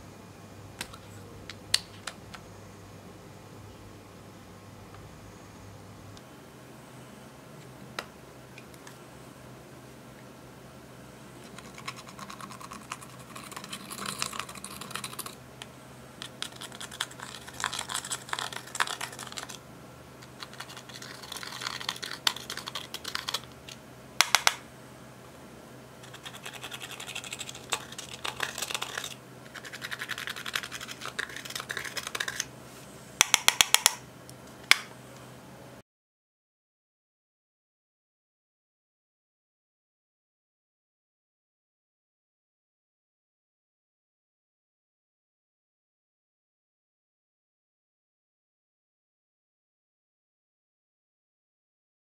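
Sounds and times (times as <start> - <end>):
dry scratching of eyeshadow: 11.4 - 15.4, 16.2 - 19.6, 20.2 - 23.5, 26.0 - 32.5.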